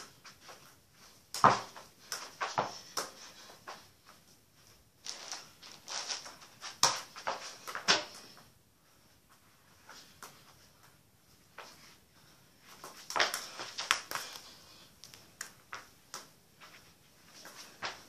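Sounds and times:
football thuds: 1.3 - 1.8
bare footfalls: 1.3 - 3.8, 5.1 - 8.3, 12.8 - 14.5.

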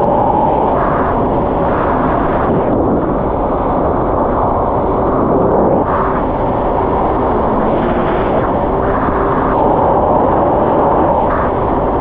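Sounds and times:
wind noise on microphone: 0.0 - 12.0
personal watercraft engine running: 3.2 - 12.0.

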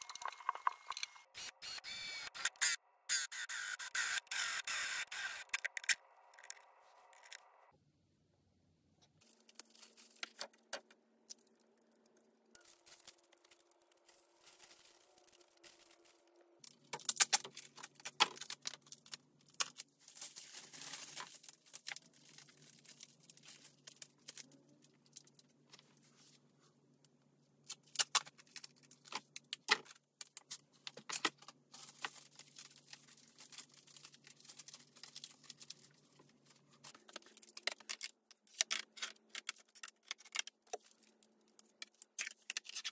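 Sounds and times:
aluminium foil crinkling: 9.2 - 10.7, 11.3 - 26.0, 27.7 - 42.9.

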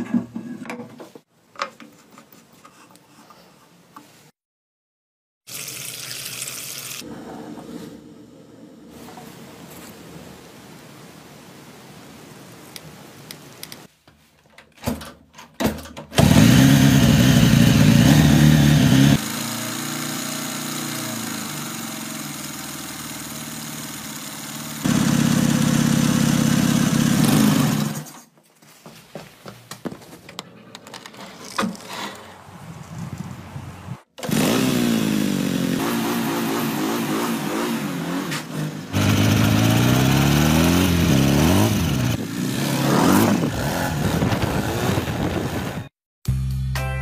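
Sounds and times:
motorcycle engine running: 16.2 - 28.0, 38.9 - 45.5.

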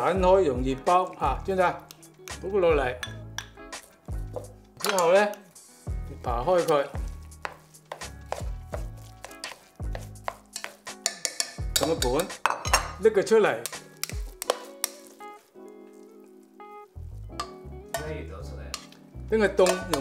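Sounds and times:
background music: 0.0 - 20.0
chopsticks scraping metal pot: 3.1 - 5.5, 6.5 - 16.1, 17.3 - 20.0
plate and pot knocking: 9.4 - 13.0.

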